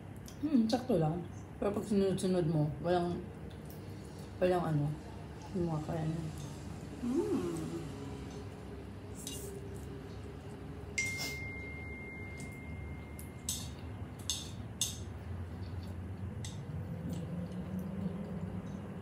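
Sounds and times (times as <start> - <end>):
glass ringing tone: 11.0 - 13.4
tableware clinking: 11.0 - 15.0.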